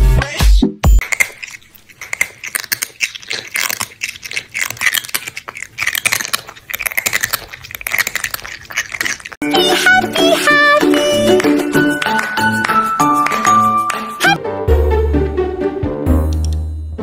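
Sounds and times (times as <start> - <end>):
crunching and chewing: 1.0 - 14.0
electronic music: 9.4 - 14.4.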